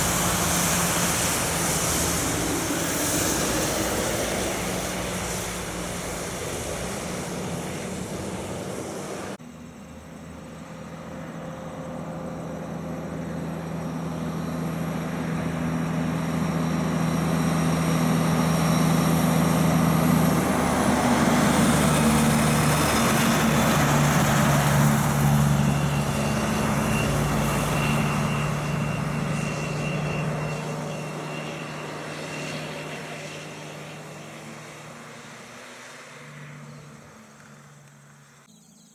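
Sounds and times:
tyre noise on wet road: 0.0 - 9.4
truck diesel engine: 0.0 - 38.5
truck engine drone passing: 0.0 - 38.5.

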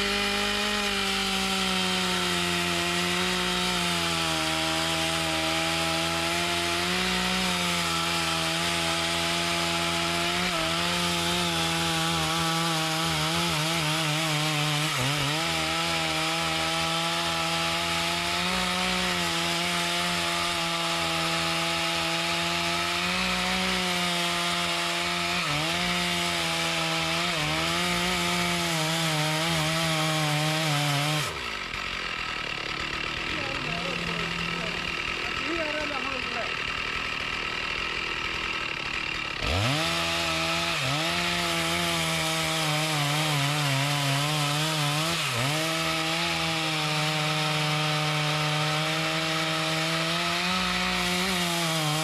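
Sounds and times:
chainsaw cutting wood: 0.0 - 52.0.

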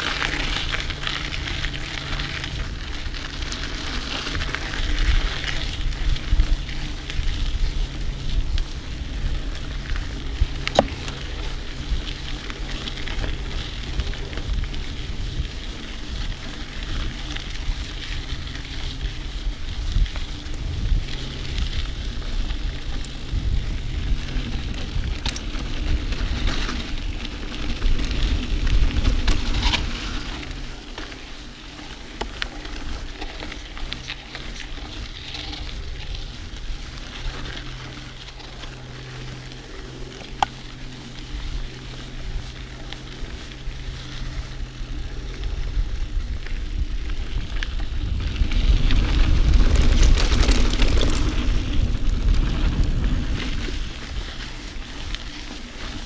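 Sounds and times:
bike clicks and rattles: 0.0 - 56.0
bike tyres crackling on dirt: 0.0 - 56.0
low rumble: 32.2 - 55.8.

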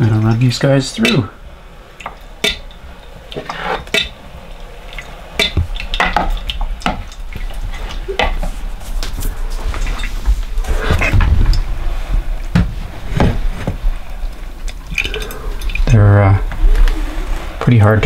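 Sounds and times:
hand-cranked food strainer squelching: 3.3 - 4.2.

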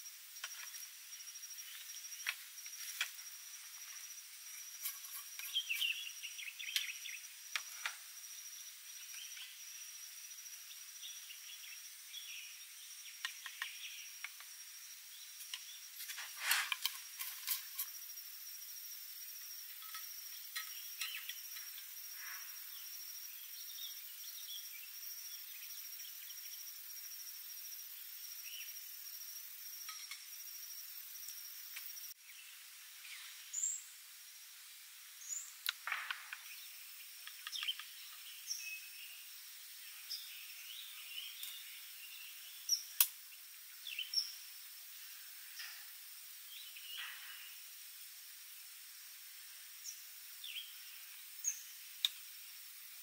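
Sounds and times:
insects trilling: 0.0 - 53.0
knocks and scrapes: 4.7 - 5.9, 16.0 - 17.9.

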